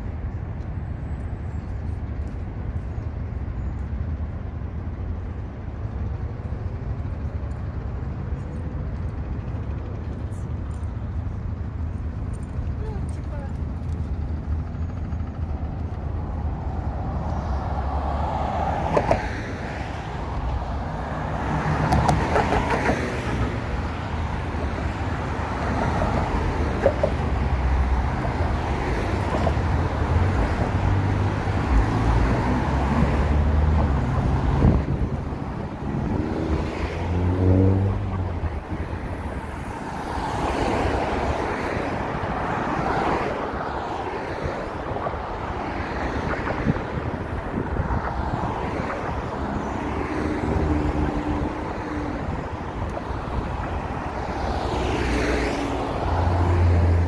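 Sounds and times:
road traffic passing: 0:00.0 - 0:57.0
vehicle engine accelerating: 0:35.8 - 0:38.4.

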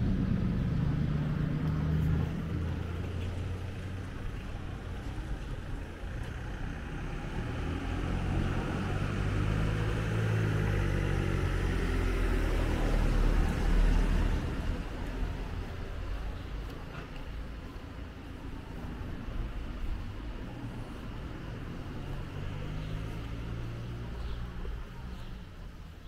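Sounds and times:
car driving past: 0:00.0 - 0:15.8, 0:20.4 - 0:25.3.

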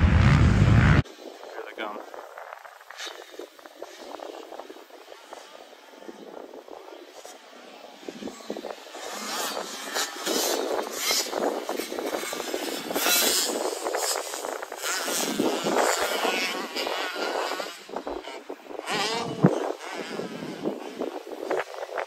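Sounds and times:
dirt bikes revving: 0:00.0 - 0:22.0.

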